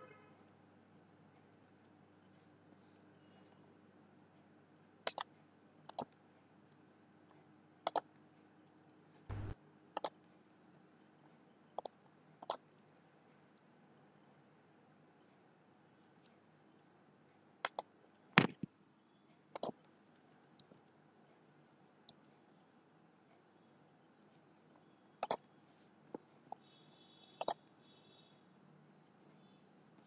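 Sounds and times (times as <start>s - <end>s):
mouse and keyboard clicks: 5.0s - 6.2s, 7.8s - 8.1s, 9.3s - 10.2s, 11.8s - 12.6s, 17.6s - 18.7s, 19.6s - 19.8s, 25.2s - 25.4s, 27.4s - 27.6s.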